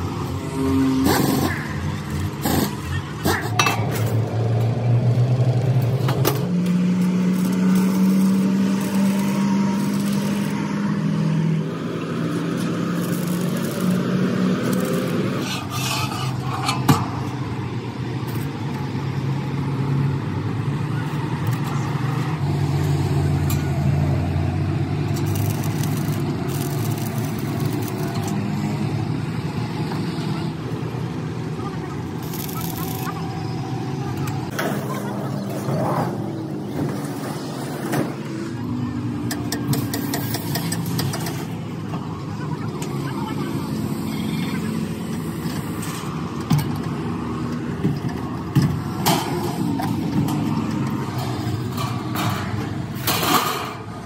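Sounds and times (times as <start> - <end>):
vehicle engine revving: 4.2 - 17.3.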